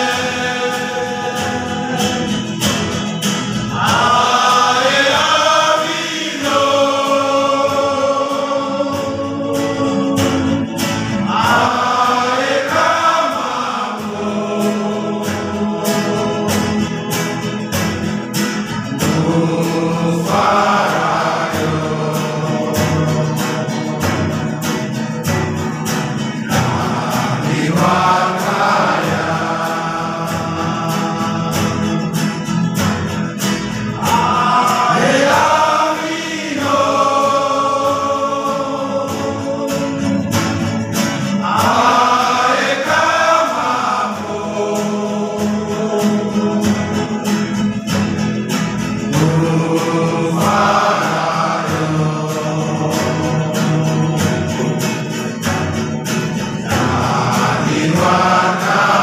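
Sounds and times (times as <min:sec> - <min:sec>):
choir singing long notes: 0:00.0 - 0:33.1, 0:33.7 - 0:48.2, 0:48.9 - 0:59.0.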